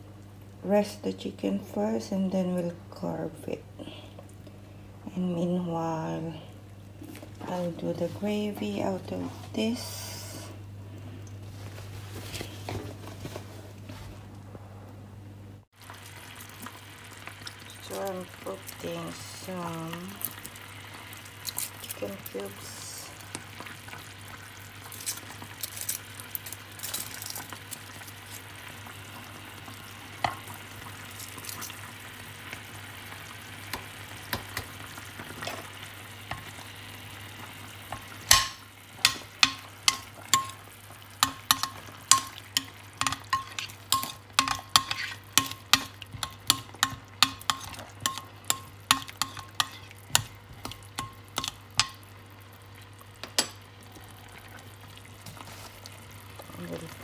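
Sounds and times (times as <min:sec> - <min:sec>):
drippings sizzling in a dish: 0:15.8 - 0:57.0.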